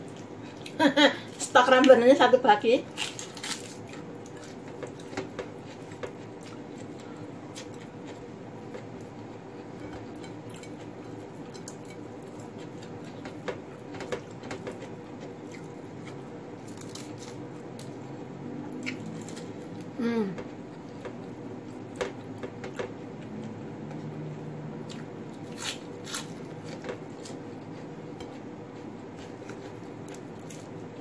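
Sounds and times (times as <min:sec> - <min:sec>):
steady hum: 0:00.0 - 0:31.0
chewing lettuce: 0:02.8 - 0:18.1, 0:18.7 - 0:19.9, 0:24.8 - 0:28.0, 0:28.7 - 0:31.0.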